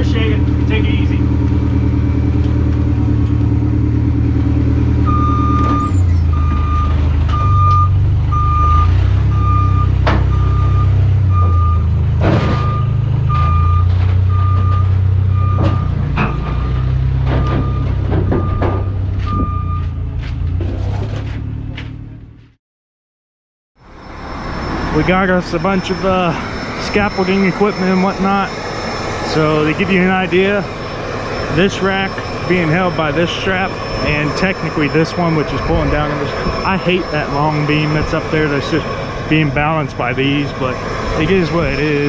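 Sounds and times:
engine drone: 0.0s - 22.5s, 23.8s - 42.0s
reversing alarm beeping: 5.0s - 20.0s, 23.8s - 42.0s
clanks: 12.2s - 22.5s.

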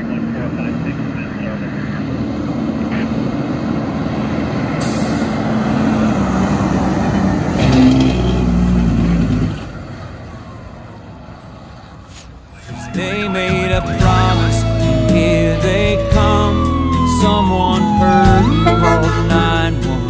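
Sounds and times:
fire engine driving past: 0.0s - 20.0s.

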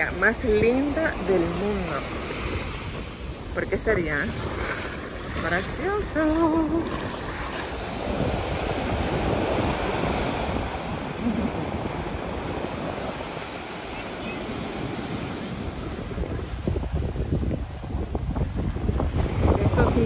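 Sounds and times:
woman's voice: 0.0s - 2.2s, 3.5s - 4.4s, 5.3s - 7.0s, 19.5s - 20.0s
small waves washing on beach: 0.0s - 20.0s
wind buffeting microphone: 0.0s - 20.0s.

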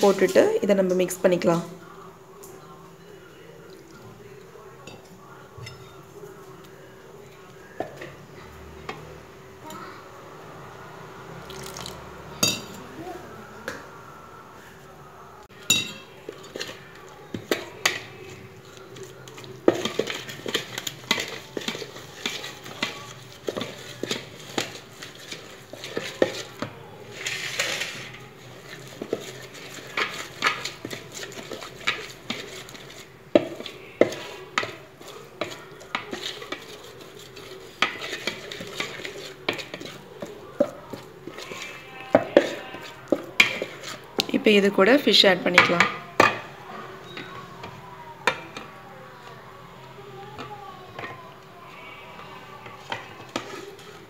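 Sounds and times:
metal spoon stirring paste: 15.5s - 54.0s
spoon clinking against bowl: 15.6s - 16.7s.

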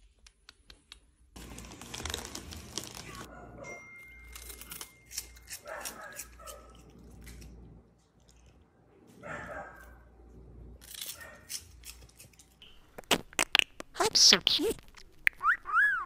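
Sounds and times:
plastic snack bag rustling: 1.4s - 3.3s
sharp crunching of eating: 1.4s - 3.3s, 4.2s - 10.0s, 10.8s - 14.0s.

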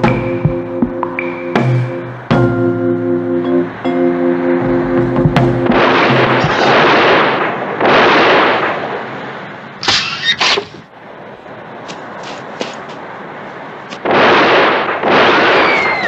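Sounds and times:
music cue: 0.0s - 6.7s
gunshots: 5.5s - 9.1s, 14.0s - 16.0s
bursts of gunfire: 5.6s - 9.0s, 14.0s - 16.0s.

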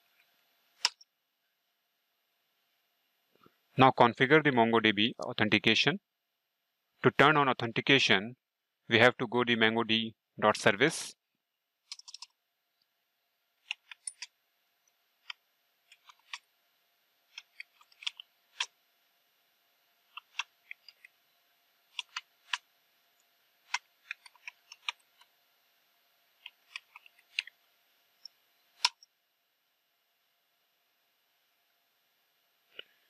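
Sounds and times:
keyboard typing: 11.9s - 12.3s, 22.0s - 22.6s.

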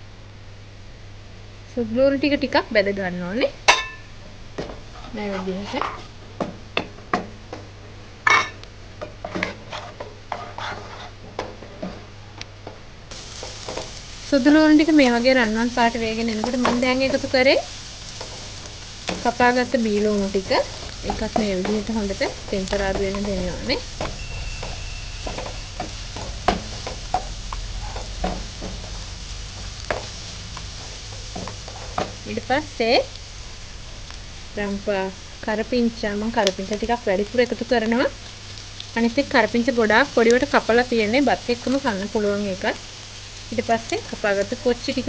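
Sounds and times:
onions sizzling in butter: 3.4s - 12.2s, 13.1s - 45.0s
spatula scraping and tapping a wok: 3.7s - 7.7s, 8.3s - 12.0s, 16.3s - 17.3s, 18.1s - 32.3s.

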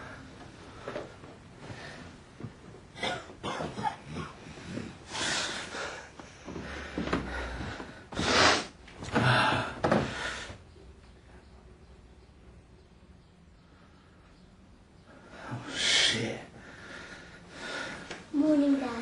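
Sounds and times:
man breathing roughly and snorting: 4.1s - 10.6s.

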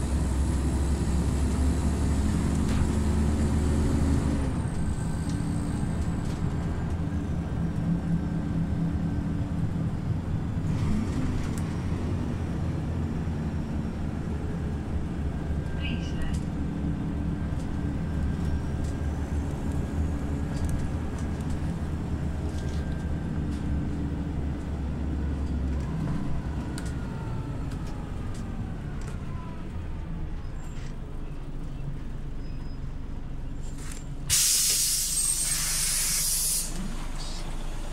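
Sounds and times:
bus engine hum and whine: 0.0s - 37.9s
loud hiss of compressed air: 34.3s - 36.8s.

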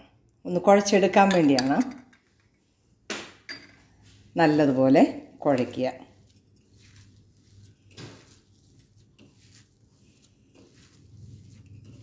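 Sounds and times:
hands squishing and patting mixture: 5.6s - 12.0s.

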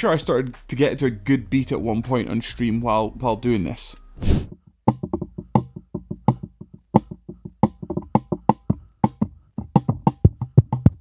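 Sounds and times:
fingers tapping on microphone: 4.5s - 11.0s.

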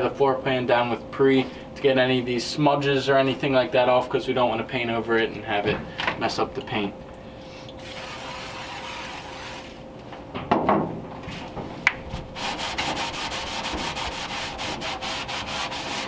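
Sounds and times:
rag rubbing on steel: 12.4s - 16.0s.

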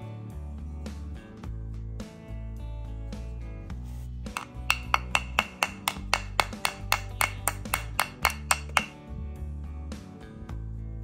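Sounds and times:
background music: 0.0s - 11.0s
screwdriver tapping on wood: 4.4s - 8.9s.

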